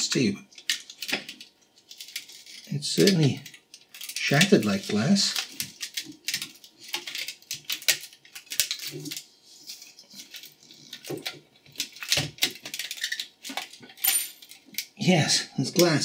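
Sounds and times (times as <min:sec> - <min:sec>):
plastic film peeling: 0:00.5 - 0:14.0
glass crackling and clicking: 0:00.6 - 0:04.6, 0:10.2 - 0:14.8.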